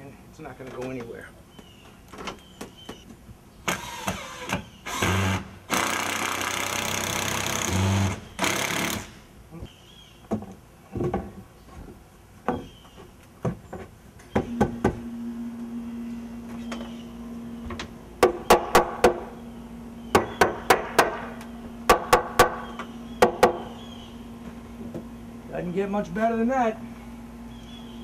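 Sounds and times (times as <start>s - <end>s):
low hum: 14.4s - 28.0s
hammer striking wood: 18.2s - 19.2s, 20.1s - 21.3s, 21.9s - 23.7s.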